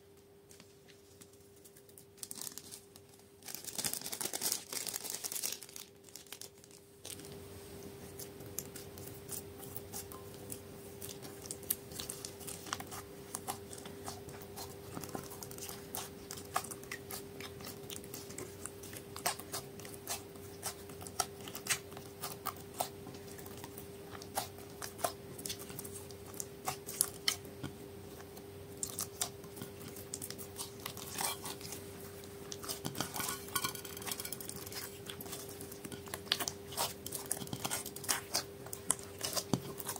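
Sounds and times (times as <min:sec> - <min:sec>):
faint steady hum: 0:00.0 - 0:39.9.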